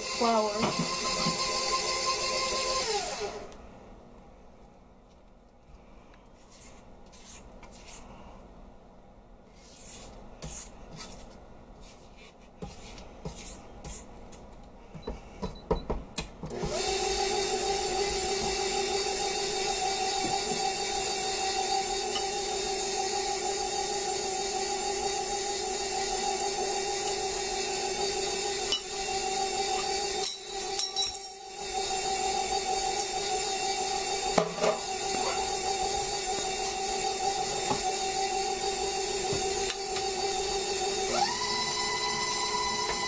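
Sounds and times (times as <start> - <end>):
electric stand mixer humming: 0.0 - 3.6, 16.5 - 43.0.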